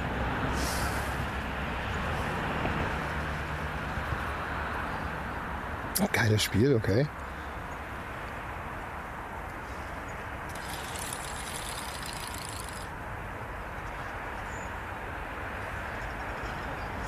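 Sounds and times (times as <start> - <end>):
high-pitched rattling whirr: 10.5 - 13.0.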